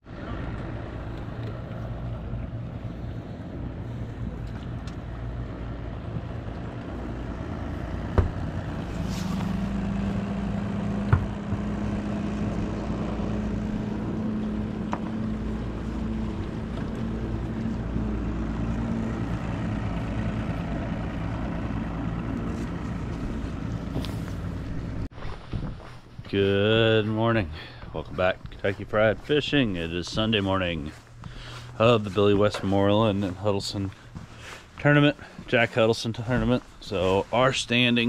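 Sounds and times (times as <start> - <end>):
boat motor running: 0.0 - 25.1
low hum: 0.0 - 34.9.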